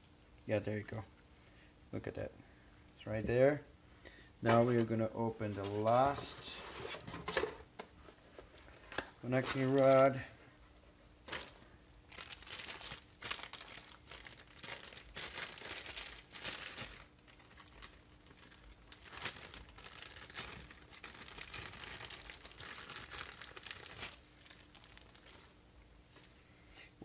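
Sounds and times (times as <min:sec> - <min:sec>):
plastic bag crinkling: 0:08.6 - 0:10.2, 0:11.2 - 0:26.4.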